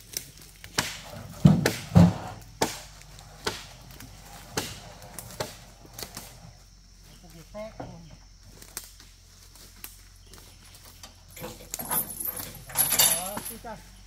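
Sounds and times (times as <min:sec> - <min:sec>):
blade chopping wood: 0:00.6 - 0:03.8, 0:04.5 - 0:05.6.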